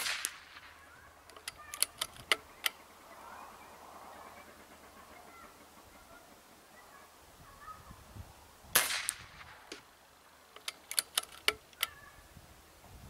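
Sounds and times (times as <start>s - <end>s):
air rifle shot: 0.0s - 0.8s, 8.7s - 9.9s
rifle action metallic clicks: 1.3s - 2.8s, 10.5s - 12.0s.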